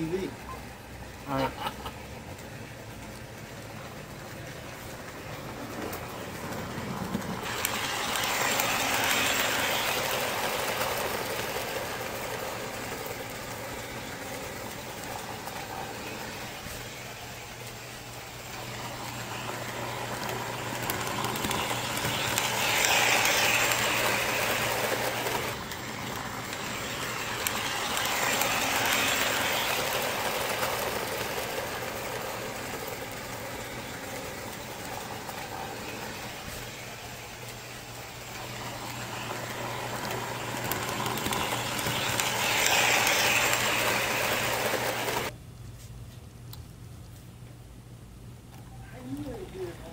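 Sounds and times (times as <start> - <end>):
model trains running on track: 0.0 - 45.4.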